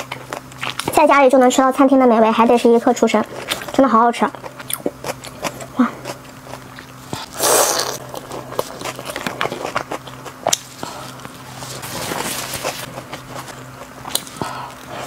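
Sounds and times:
mouth clicks and chewing: 0:04.3 - 0:11.3.

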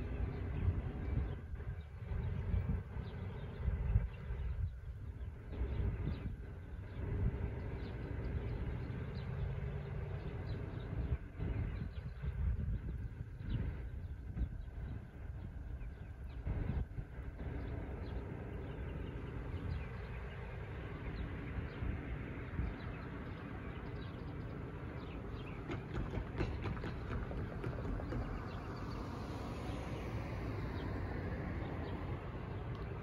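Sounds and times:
low traffic rumble: 0:00.0 - 0:33.0
car driving over railroad tracks: 0:25.4 - 0:30.0.

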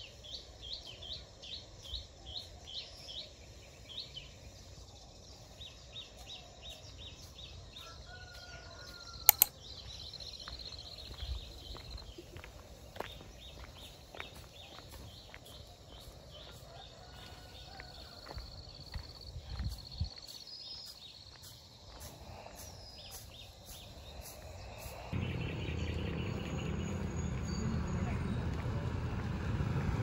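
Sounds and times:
birds chirping: 0:08.8 - 0:29.2
low steady engine hum: 0:25.1 - 0:30.0.

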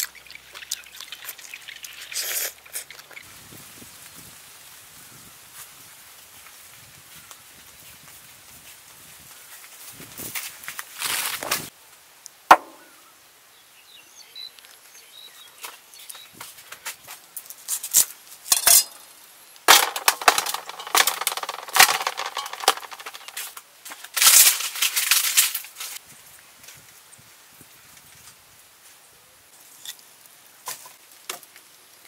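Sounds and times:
snakes scraping against metal: 0:18.5 - 0:19.0.

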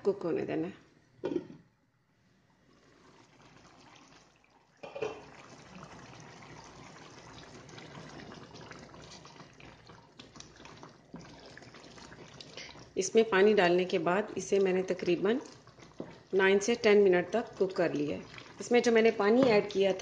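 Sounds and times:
gravy simmering and bubbling: 0:00.9 - 0:20.0
wooden spatula stirring gravy: 0:06.0 - 0:13.0, 0:14.6 - 0:19.8.

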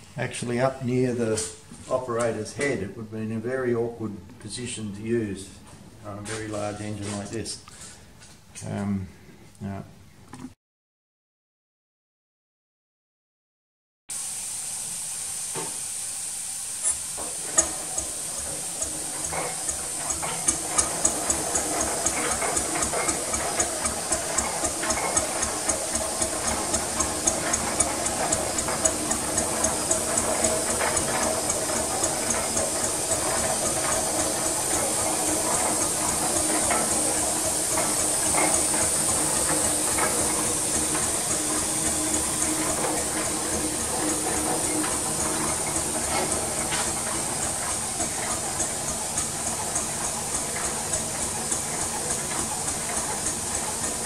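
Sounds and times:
hiss of air: 0:14.1 - 0:51.7
engine exhaust beats: 0:16.9 - 0:54.0.

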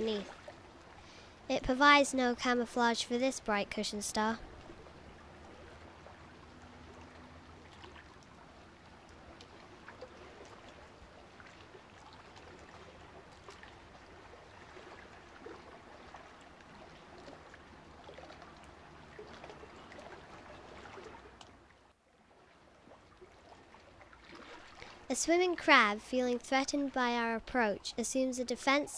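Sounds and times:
trickling water hiss: 0:00.0 - 0:21.4.

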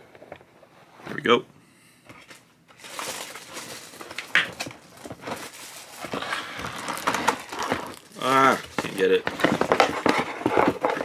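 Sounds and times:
plastic packaging crinkling: 0:02.7 - 0:11.0.

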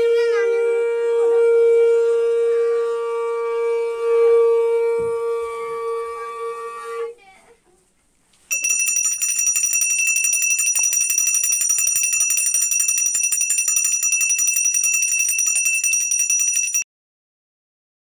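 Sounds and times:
hand bell ringing rapidly: 0:08.5 - 0:16.8.

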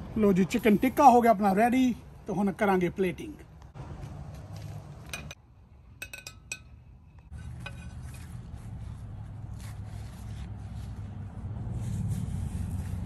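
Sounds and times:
metal skewers clinking: 0:05.1 - 0:08.5.

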